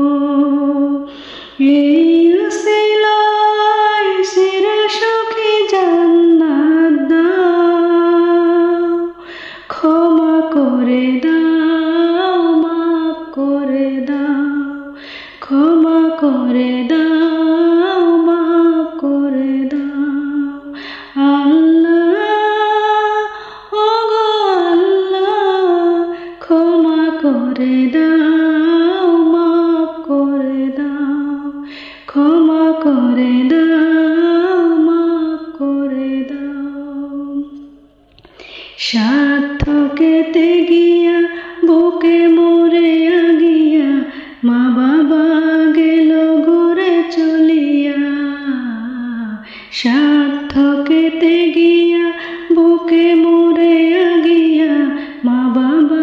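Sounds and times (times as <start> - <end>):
woman singing devotional song: 0.0 - 56.0.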